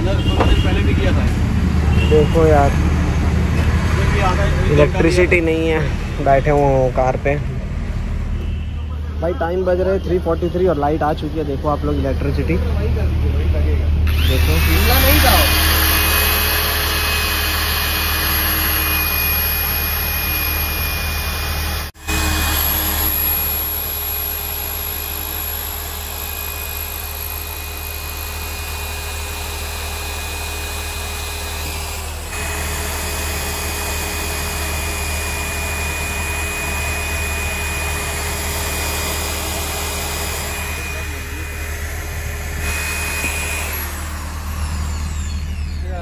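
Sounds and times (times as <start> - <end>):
electric drill whining: 14.0 - 46.0.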